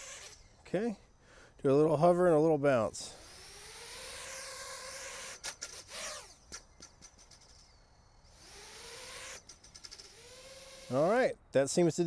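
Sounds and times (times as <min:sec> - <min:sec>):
drone motors whining: 0:00.0 - 0:00.6, 0:03.1 - 0:06.7, 0:07.3 - 0:11.1.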